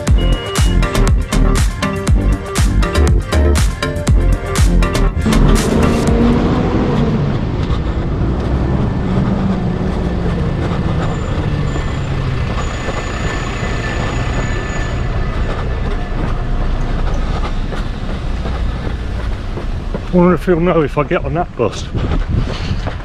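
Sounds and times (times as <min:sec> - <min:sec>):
bus engine rumbling past: 0:04.9 - 0:23.0.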